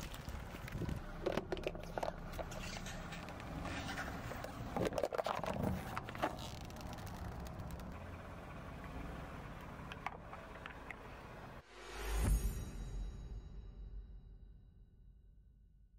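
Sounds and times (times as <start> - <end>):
tyre noise on asphalt: 0.0 - 11.6
car engine running slowly: 5.4 - 11.6.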